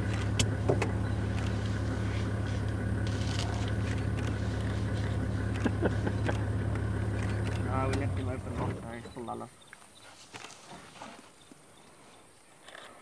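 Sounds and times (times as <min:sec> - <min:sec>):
vehicle engine humming: 0:00.0 - 0:09.6
sharp clicks: 0:07.1 - 0:08.1.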